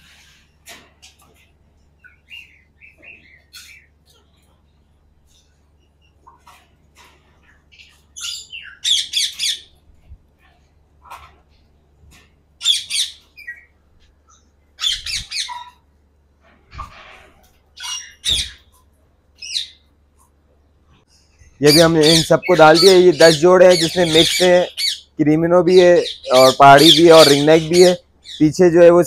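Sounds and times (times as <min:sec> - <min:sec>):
parakeets squawking: 0:07.7 - 0:09.8, 0:12.6 - 0:13.7, 0:14.8 - 0:15.8, 0:17.7 - 0:18.7, 0:21.6 - 0:28.5.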